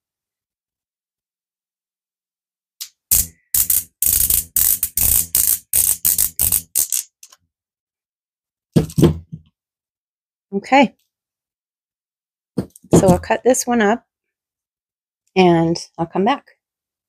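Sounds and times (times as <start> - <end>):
plastic marker barrel scraping: 2.8 - 7.2.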